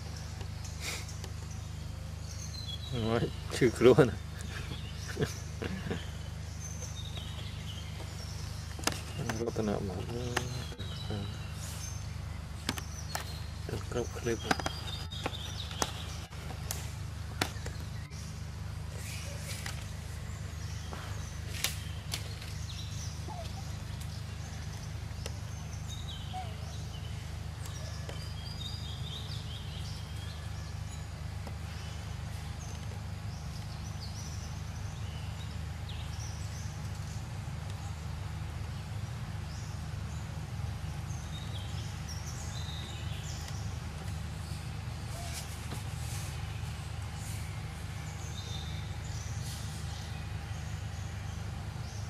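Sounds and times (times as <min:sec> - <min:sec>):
bird chirps: 0:00.0 - 0:52.0.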